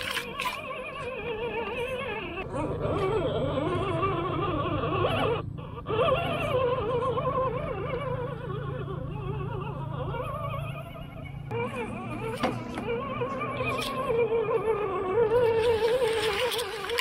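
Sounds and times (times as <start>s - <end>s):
steady low hum: 0.0s - 17.0s
wavering voice-like melody: 11.3s - 17.0s.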